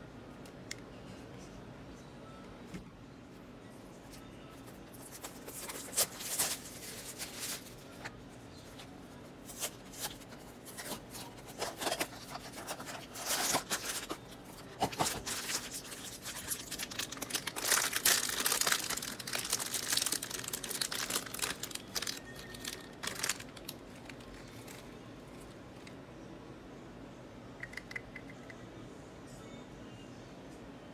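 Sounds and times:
foil and plastic bag crinkling: 4.6 - 8.1, 9.4 - 25.0.

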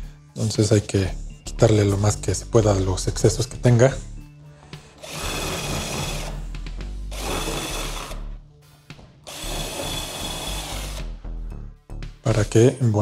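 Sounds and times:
small power tool running: 5.0 - 6.4, 7.1 - 8.2, 9.3 - 11.1.

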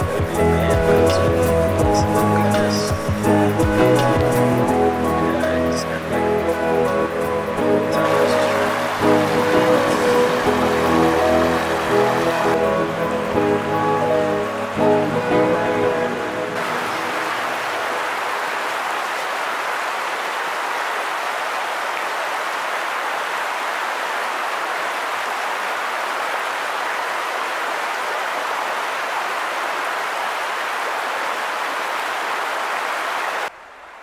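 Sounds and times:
creek water flowing over stones: 0.0 - 33.6.

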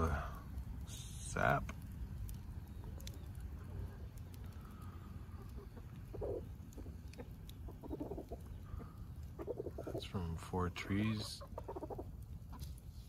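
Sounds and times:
low steady rumble: 0.0 - 13.0
chickens clucking: 5.1 - 10.1, 11.0 - 12.7.

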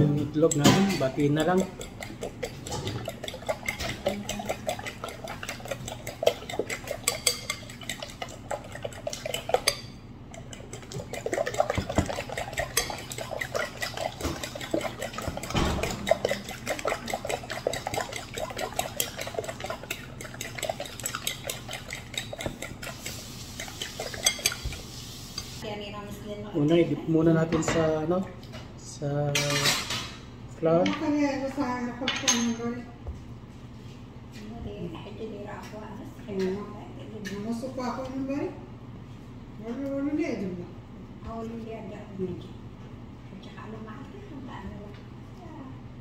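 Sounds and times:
fork beating eggs in glass bowl: 0.0 - 25.6.

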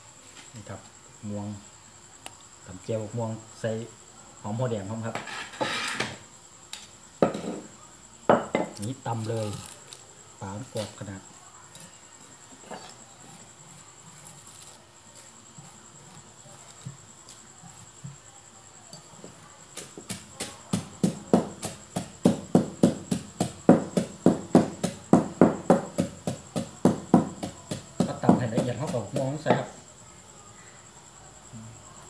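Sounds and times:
high insect trill: 0.0 - 32.0
pestle pounding in mortar: 19.7 - 29.7.

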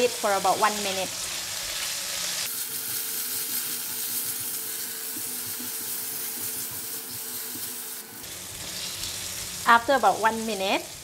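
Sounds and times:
vegetables sizzling in a wok: 0.0 - 11.0.

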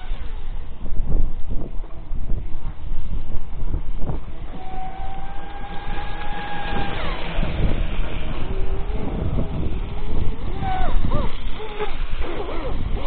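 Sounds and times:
speedboat motor whine: 0.0 - 13.0
wind buffeting microphone: 0.0 - 13.0.

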